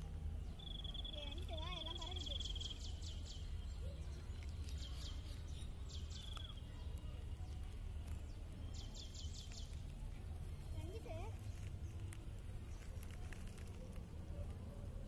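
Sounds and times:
thin high bird trill: 0.6 - 3.5, 4.2 - 6.9.

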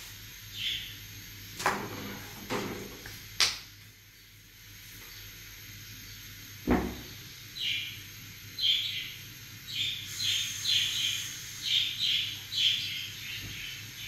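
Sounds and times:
birds chirping: 0.3 - 1.3, 5.9 - 14.0.

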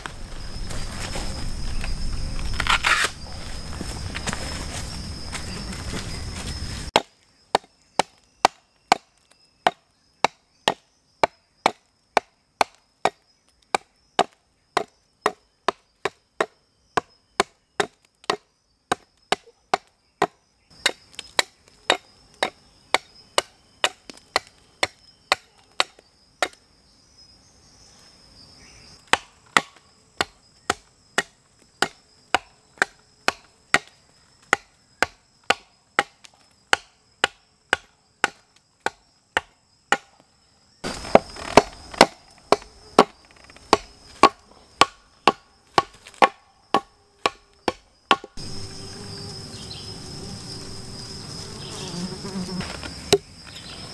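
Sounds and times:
hatchet chopping log: 6.9 - 26.6, 29.0 - 40.2, 40.8 - 48.5.

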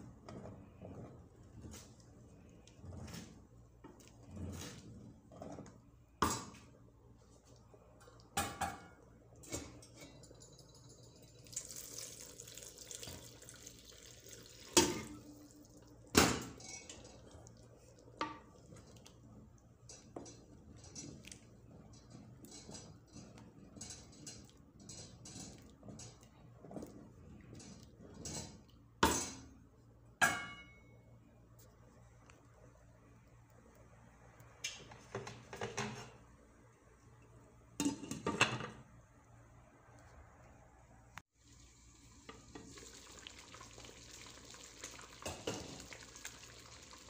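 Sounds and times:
wooden spoon stirring wet rice: 16.7 - 28.9.

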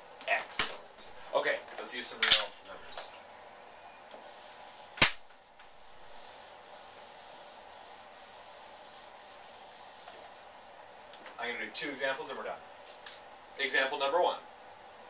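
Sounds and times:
whiteboard eraser rubbing: 3.6 - 11.1
sharp knock: 5.0 - 5.2.

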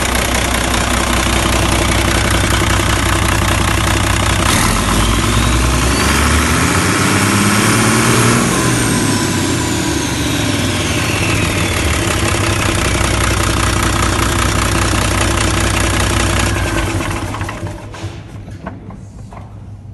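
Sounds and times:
diesel engine running: 0.0 - 18.0
turbo whine: 4.4 - 14.6.

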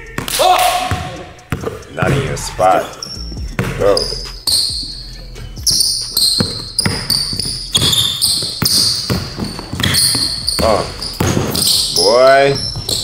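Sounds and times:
sneakers squeaking: 0.0 - 13.0
basketball dribbling on hardwood: 0.9 - 2.4, 3.5 - 4.7, 5.6 - 13.0.

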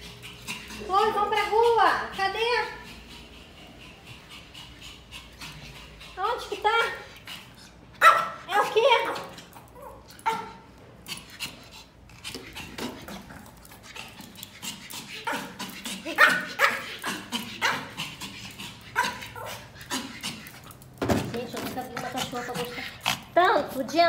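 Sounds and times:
small dog barking: 8.0 - 9.2, 9.8 - 10.6, 16.2 - 17.9.

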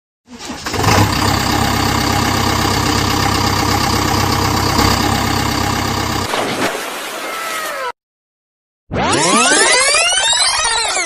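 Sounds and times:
toy engine idling: 0.9 - 6.3.

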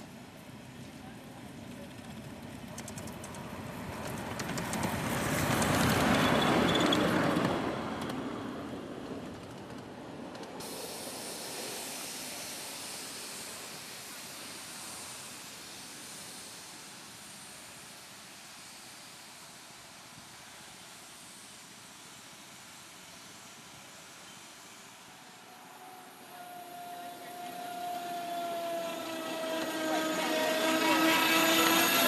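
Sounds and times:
miniature train rolling past: 0.0 - 32.0
faint steady hiss: 10.4 - 29.6.

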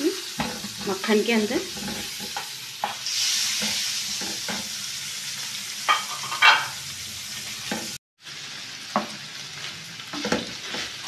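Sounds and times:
cheese sizzling in a pan: 0.0 - 11.0
spatula scraping a pan: 0.2 - 4.8, 5.8 - 6.8, 9.6 - 11.0.

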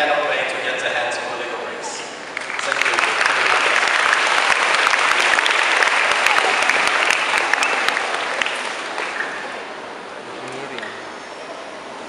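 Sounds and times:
audience applauding: 2.3 - 9.8.

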